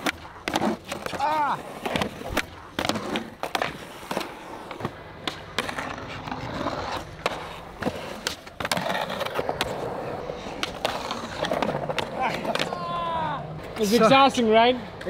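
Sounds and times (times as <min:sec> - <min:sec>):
skateboard clacks: 0:00.0 - 0:14.0
skateboard wheels rumbling on concrete: 0:00.0 - 0:15.0.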